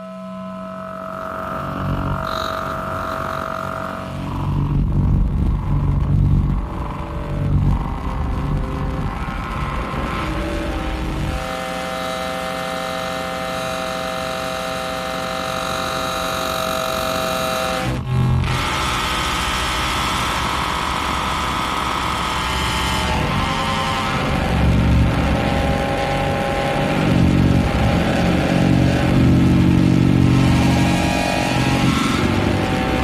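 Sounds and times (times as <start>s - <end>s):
chord of held tones: 0.0s - 5.1s
feedback tone: 0.0s - 33.0s
rough low rumble: 0.9s - 11.5s.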